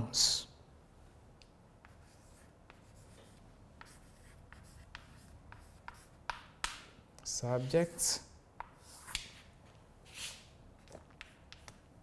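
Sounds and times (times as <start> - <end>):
chalk scratching on blackboard: 1.8 - 6.8, 8.6 - 10.5.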